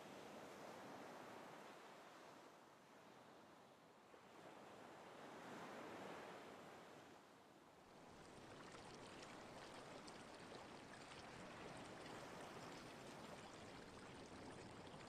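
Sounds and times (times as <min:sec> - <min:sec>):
flowing water rushing: 0:07.9 - 0:15.0.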